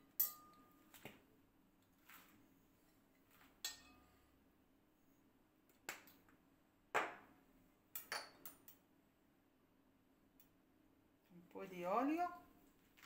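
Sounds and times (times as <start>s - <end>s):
light clinks of kitchenware: 0.0s - 0.8s, 3.6s - 4.2s, 8.0s - 8.8s.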